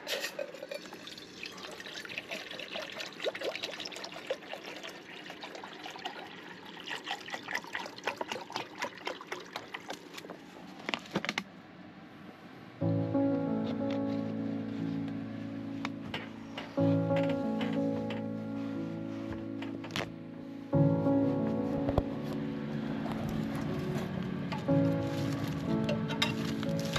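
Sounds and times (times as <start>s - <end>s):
water pouring into a metal pot: 0.3s - 10.0s.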